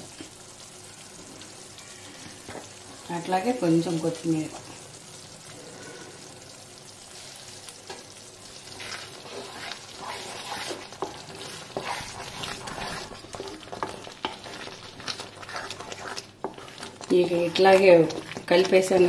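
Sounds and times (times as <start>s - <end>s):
curry sizzling in a pan: 0.0s - 19.0s
spoon scraping a pan: 8.7s - 19.0s.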